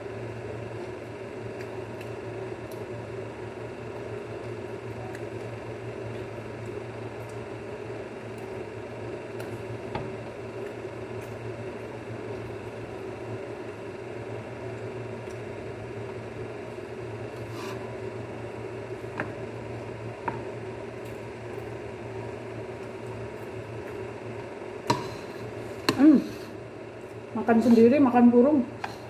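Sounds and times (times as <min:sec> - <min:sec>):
low background hum: 0:00.0 - 0:29.0.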